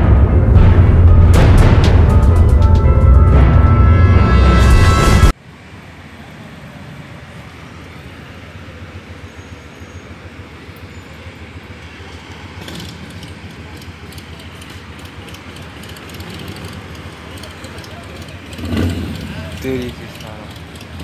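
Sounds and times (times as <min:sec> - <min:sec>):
motorcycle engine rumbling: 0:00.0 - 0:05.3, 0:12.4 - 0:21.0.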